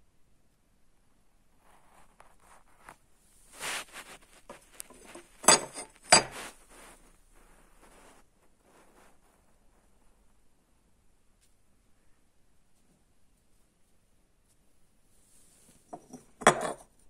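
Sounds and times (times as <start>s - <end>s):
rustling and scraping: 1.5s - 10.4s, 15.2s - 17.0s.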